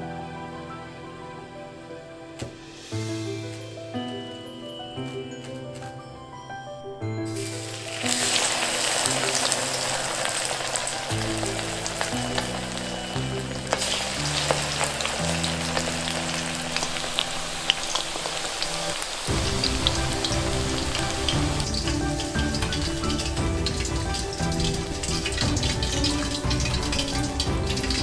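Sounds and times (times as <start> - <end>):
background music: 0.0 - 28.0
chicken deep-frying in oil: 7.3 - 28.0.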